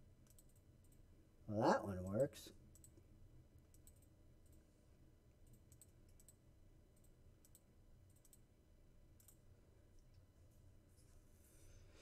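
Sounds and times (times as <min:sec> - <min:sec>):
low steady hum: 0:00.0 - 0:12.0
computer mouse clicks: 0:00.2 - 0:01.0, 0:02.7 - 0:04.6, 0:05.4 - 0:08.5, 0:09.2 - 0:09.4.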